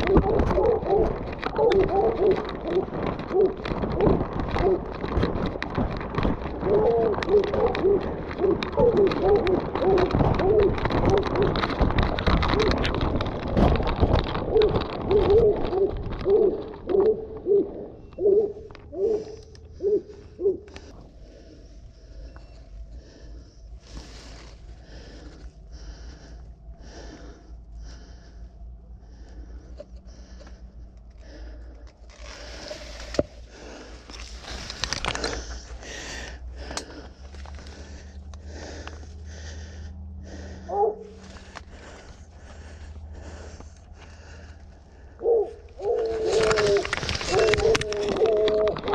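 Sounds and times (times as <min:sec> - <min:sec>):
hound baying: 0:00.0 - 0:05.1, 0:06.5 - 0:11.6, 0:14.4 - 0:20.8, 0:40.6 - 0:41.2, 0:45.2 - 0:48.9
rustling corn stalks and leaves: 0:00.0 - 0:28.4, 0:29.0 - 0:48.9
person breathing in soft puffs: 0:19.1 - 0:47.4.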